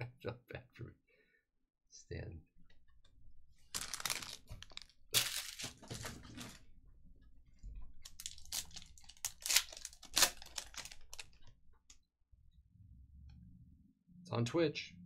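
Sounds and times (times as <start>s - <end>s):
foil wrapper tearing and crinkling: 3.7s - 6.0s, 8.0s - 11.5s.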